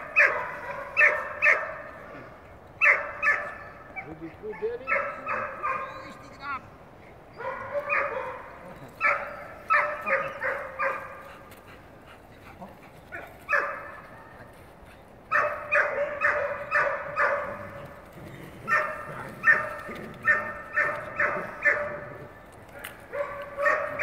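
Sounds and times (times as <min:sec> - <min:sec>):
dog barking in high yips: 0:07.4 - 0:08.4, 0:22.8 - 0:24.0.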